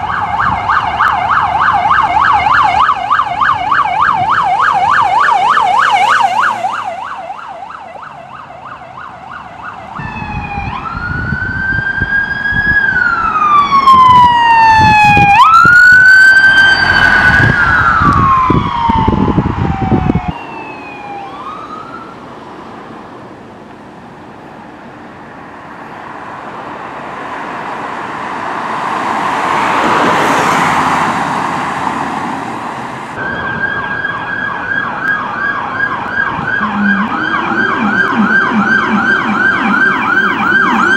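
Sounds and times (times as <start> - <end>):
siren wail: 0.0 - 22.3, 28.2 - 32.1, 33.0 - 40.9
siren yelp: 0.0 - 22.3, 33.2 - 40.9
vehicle rushing past: 5.0 - 23.0, 25.5 - 40.9.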